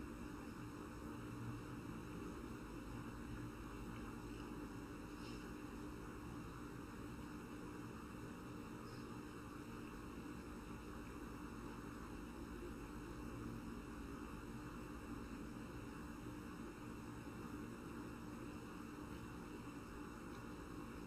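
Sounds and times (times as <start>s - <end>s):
faint electrical hum: 0.0s - 21.0s.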